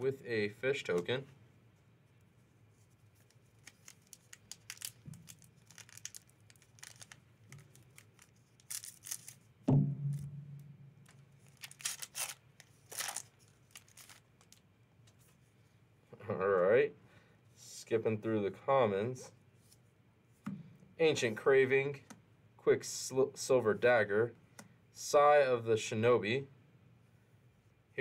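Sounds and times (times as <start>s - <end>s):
scissors cutting wrapper: 3.2s - 9.4s, 11.5s - 14.6s
wrapper crinkling and tearing: 3.2s - 9.5s, 11.4s - 14.6s
loud thump: 9.7s - 11.0s.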